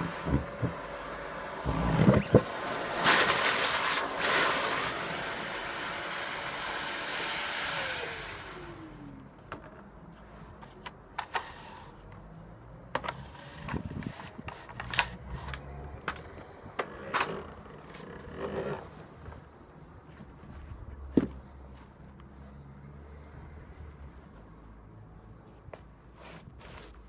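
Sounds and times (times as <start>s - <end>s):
vacuum cleaner running: 0.0s - 9.2s
motor winding down whine: 0.2s - 9.2s.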